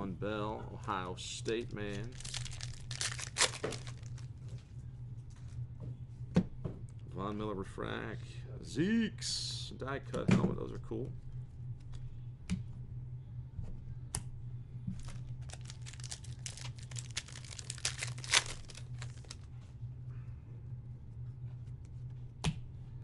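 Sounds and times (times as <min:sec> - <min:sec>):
low hum: 0:00.0 - 0:09.8, 0:10.6 - 0:23.0
wrapper tearing and crinkling: 0:01.9 - 0:04.3, 0:15.0 - 0:19.4.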